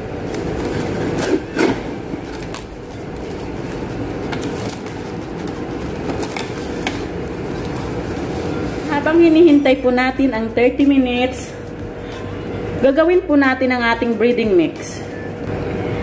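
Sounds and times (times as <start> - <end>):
steady background hum: 0.0 - 16.0
plastic cling wrap crackling: 0.2 - 8.9.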